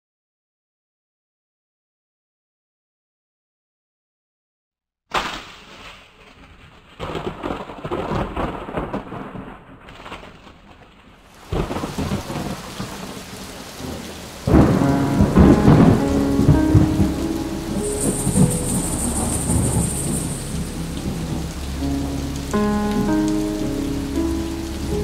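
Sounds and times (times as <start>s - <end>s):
rain splashing: 5.1s - 25.0s
rolling thunder: 11.4s - 25.0s.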